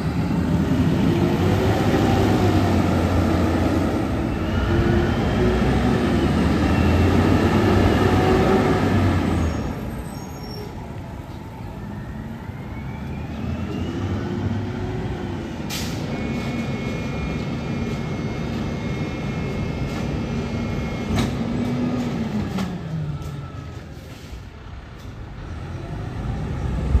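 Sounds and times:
garbage truck diesel engine revving: 0.0s - 9.9s.

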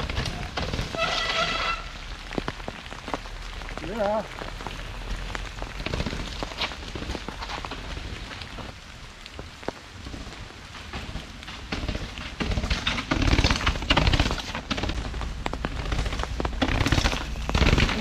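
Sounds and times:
bike clattering down stone stairs: 0.0s - 3.2s, 5.7s - 8.7s, 10.0s - 18.0s
rain pattering: 0.0s - 18.0s.

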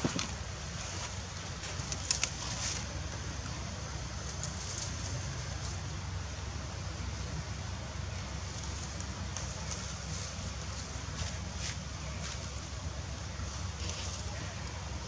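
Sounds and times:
twigs cracking: 1.7s - 2.8s.

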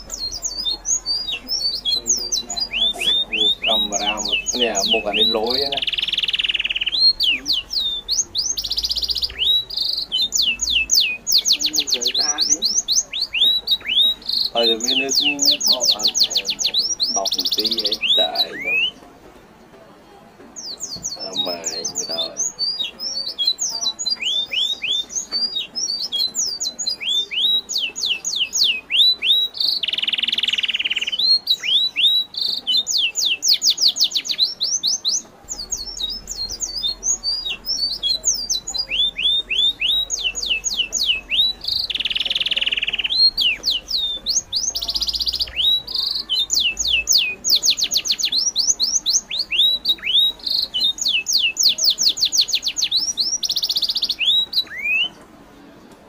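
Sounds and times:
songbirds chirping: 0.0s - 56.0s.

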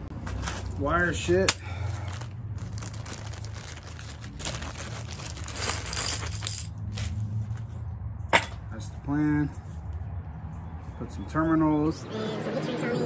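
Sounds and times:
rustling with metallic clinks: 1.5s - 7.7s.

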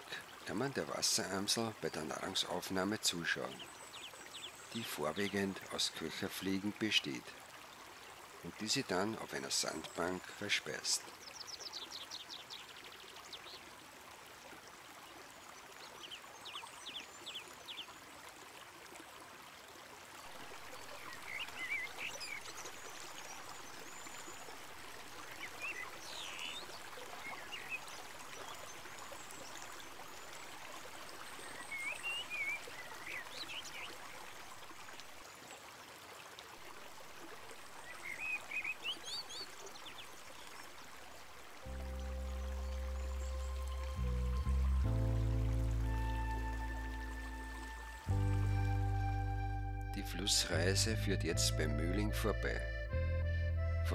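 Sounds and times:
small birds chirping: 0.0s - 7.2s, 8.7s - 13.7s, 20.2s - 30.6s, 31.2s - 34.2s, 37.8s - 40.8s
river flowing over stones: 0.0s - 48.9s.

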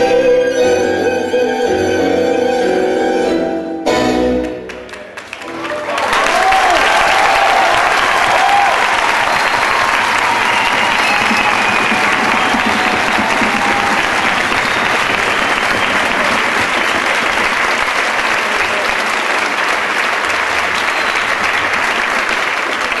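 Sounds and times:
audience applauding: 4.6s - 23.0s.

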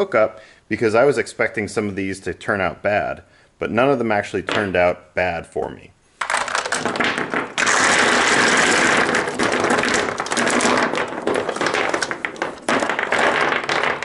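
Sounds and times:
batteries clattering onto wood: 6.2s - 14.0s.

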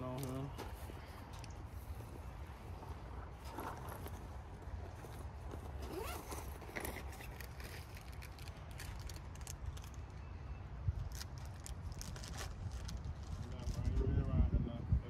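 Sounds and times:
wind rumble on microphone: 10.7s - 15.0s.

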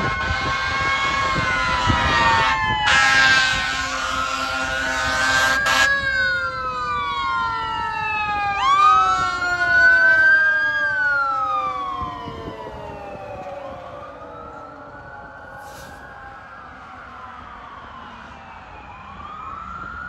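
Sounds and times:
loud horn blast: 0.0s - 6.0s
fire engine siren wailing: 0.0s - 20.0s.

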